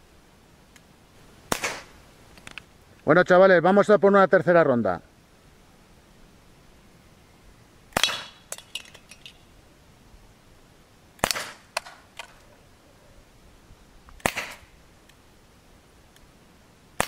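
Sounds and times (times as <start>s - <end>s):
air pistol shots: 1.5s - 1.9s, 8.0s - 8.5s, 11.2s - 12.0s, 14.2s - 14.7s
metallic clinks and rattles: 8.4s - 9.5s.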